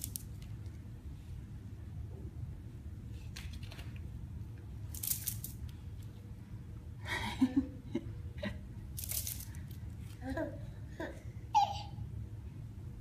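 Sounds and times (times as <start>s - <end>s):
toy crinkling and rustling: 0.0s - 0.8s, 4.9s - 6.2s, 9.0s - 10.2s
low room hum: 0.0s - 13.0s.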